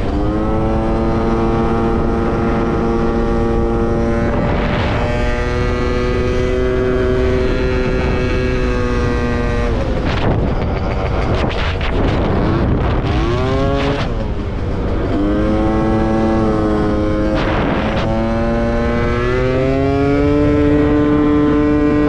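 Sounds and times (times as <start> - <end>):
scooter engine at high revs: 0.0 - 22.0
wind noise on microphone: 0.0 - 22.0.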